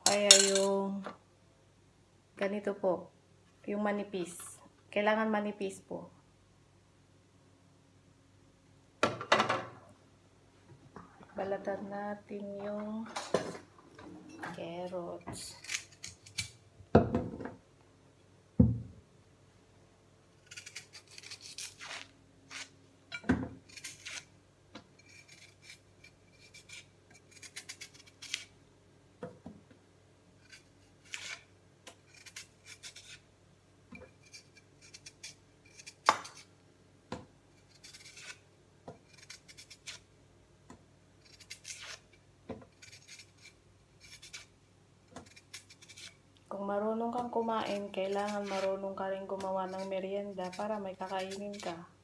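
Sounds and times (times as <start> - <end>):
knife scraping peel: 14.9 - 16.6, 20.4 - 22.8, 23.6 - 24.3, 25.0 - 28.6, 30.4 - 33.2, 34.1 - 36.5, 37.5 - 38.4, 39.0 - 40.1, 41.2 - 46.2, 47.5 - 51.8.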